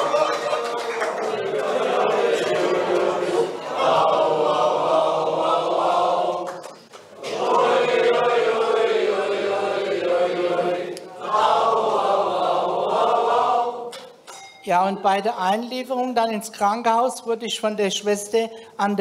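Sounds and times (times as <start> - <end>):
crowd chanting in chorus: 0.0 - 14.1.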